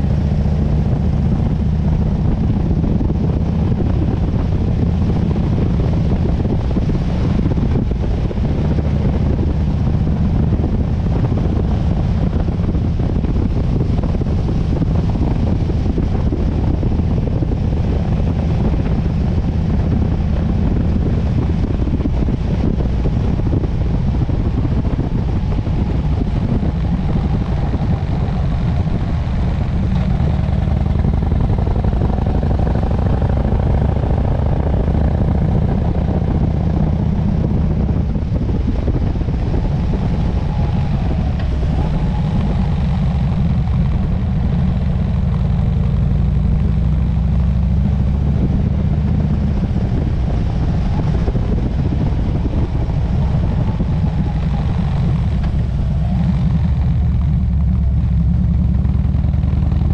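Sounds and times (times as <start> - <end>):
motorcycle engine running: 0.0 - 59.9
wind rushing past microphone: 0.0 - 59.9.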